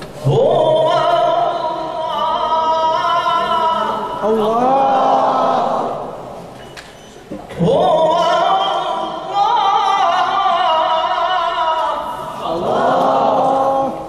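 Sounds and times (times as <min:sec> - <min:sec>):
man reciting melodically: 0:00.0 - 0:06.0, 0:07.5 - 0:14.0.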